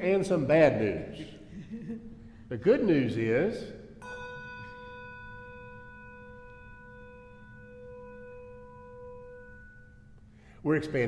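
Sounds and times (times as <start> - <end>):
handbell ringing: 4.0 - 10.2.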